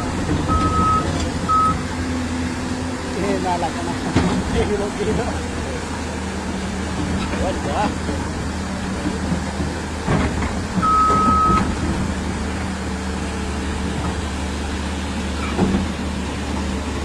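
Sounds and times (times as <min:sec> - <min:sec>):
vehicle engine running: 0:00.0 - 0:17.0
short beep: 0:00.5 - 0:01.8, 0:10.8 - 0:11.6.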